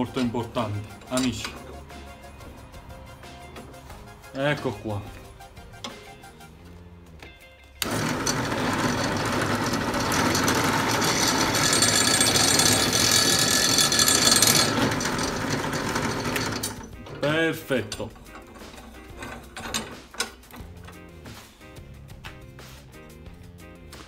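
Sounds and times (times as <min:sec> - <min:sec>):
drill bit cutting wood: 0:07.8 - 0:16.9
drill press motor running: 0:07.8 - 0:20.7.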